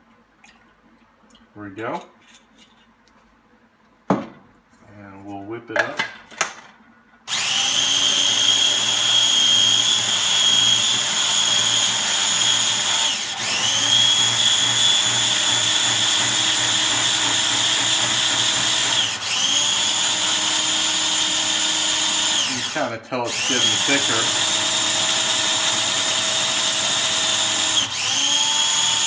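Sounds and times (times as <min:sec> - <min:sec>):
electric mixer motor whining: 0:07.3 - 0:29.0.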